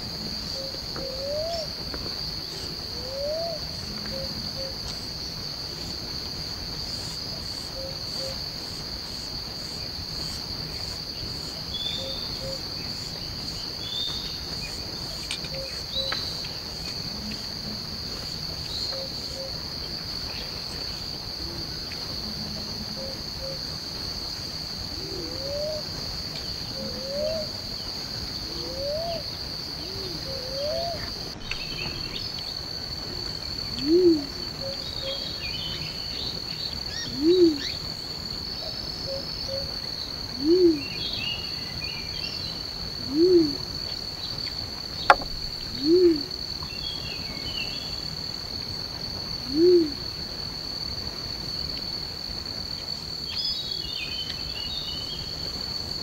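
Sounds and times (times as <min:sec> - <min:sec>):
high-pitched insect chorus: 0:00.0 - 0:56.0
low animal call: 0:43.1 - 0:43.7, 0:45.1 - 0:46.4
faint rising calls: 0:45.0 - 0:46.4.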